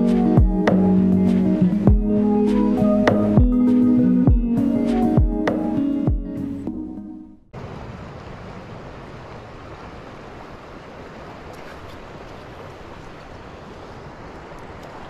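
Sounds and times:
river flowing over gravel: 7.6s - 15.0s.

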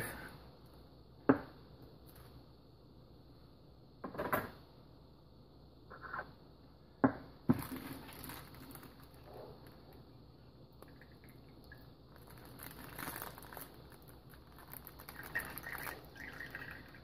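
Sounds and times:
plastic bag rustling: 7.5s - 10.0s, 12.1s - 17.0s.

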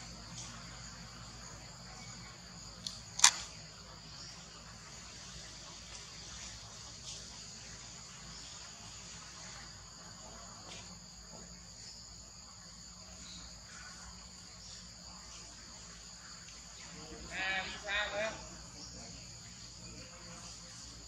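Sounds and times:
insects buzzing: 0.0s - 21.0s
faint clicks: 2.8s - 3.9s.

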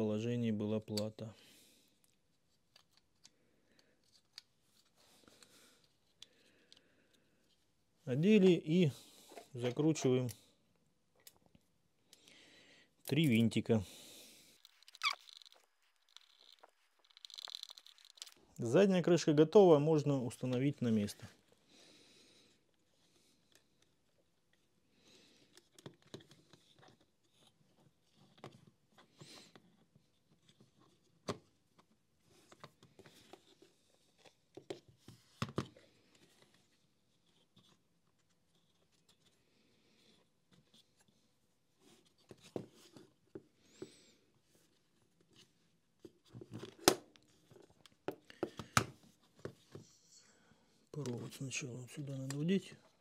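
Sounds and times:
plastic parts clicking and knocking: 14.6s - 18.5s, 46.0s - 49.8s.

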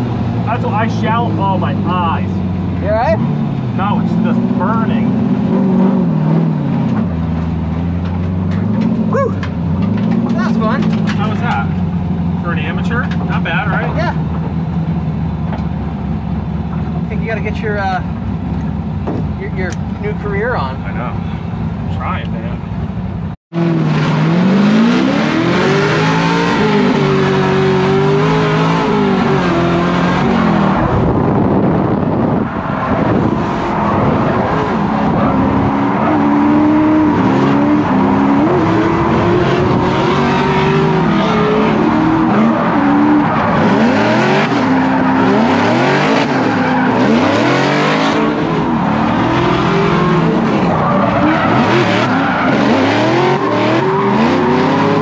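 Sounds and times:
car engine revving hard: 3.0s - 8.0s, 23.5s - 55.0s
tyre and wind noise: 28.9s - 43.7s
tyres screeching: 32.3s - 55.0s.

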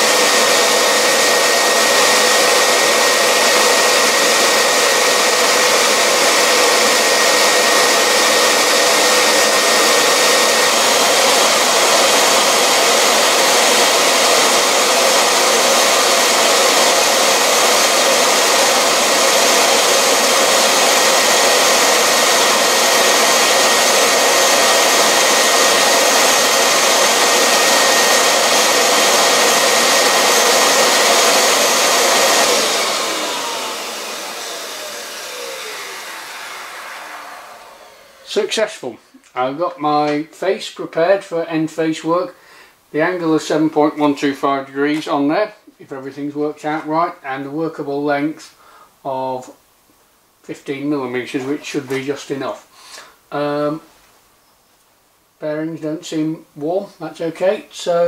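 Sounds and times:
grinder high whine: 0.0s - 39.0s, 50.7s - 52.5s
vacuum air rush: 0.0s - 39.2s.

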